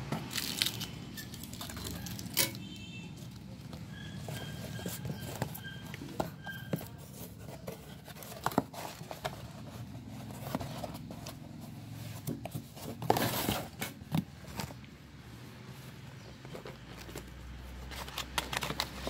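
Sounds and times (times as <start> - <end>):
packaging tearing and crinkling: 0.2 - 2.6, 17.8 - 19.0.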